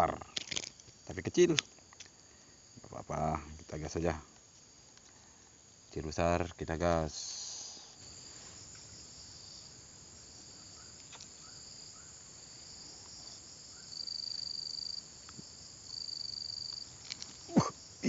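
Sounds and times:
high insect trill: 0.0s - 18.0s
insects buzzing: 0.0s - 18.0s
faint ticks: 4.3s - 5.5s, 15.2s - 17.5s.

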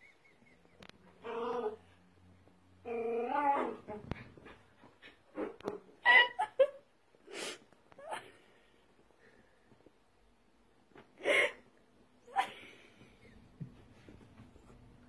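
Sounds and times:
puppy whining and grunting: 0.7s - 2.0s, 2.8s - 6.6s.

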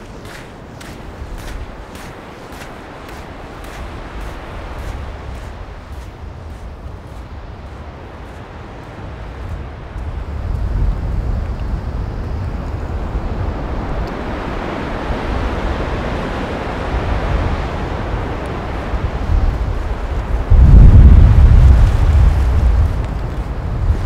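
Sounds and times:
wind buffeting microphone: 0.0s - 24.0s
breaking surf: 13.4s - 24.0s.

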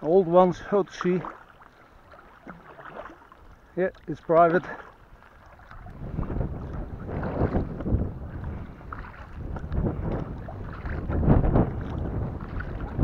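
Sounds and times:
water splashing against kayak hull: 0.0s - 13.0s
wind rumble on microphone: 5.0s - 13.0s.

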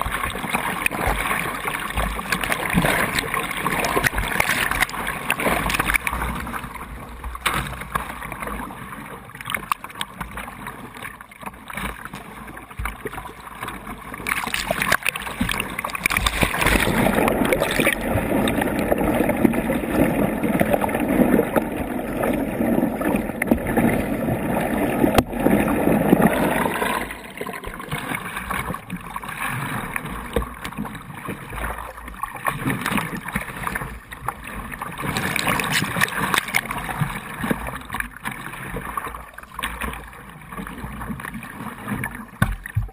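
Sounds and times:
paddle splashes: 0.0s - 42.9s
underwater gurgling rush: 0.0s - 42.9s
river water rushing: 14.3s - 19.3s.

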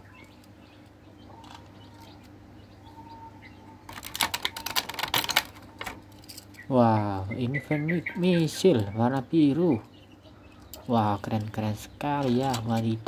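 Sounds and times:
low steady background hum: 0.0s - 13.0s
plastic blister tray crackling: 3.9s - 6.2s.

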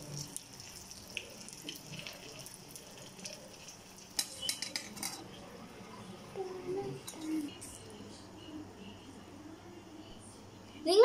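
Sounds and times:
oil crackling and popping: 0.0s - 5.1s
egg sizzling in oil: 0.0s - 6.3s.

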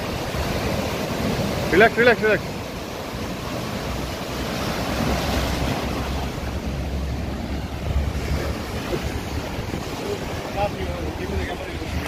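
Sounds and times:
sea waves breaking on rocks: 0.0s - 12.0s
wind rumbling on microphone: 2.4s - 12.0s.

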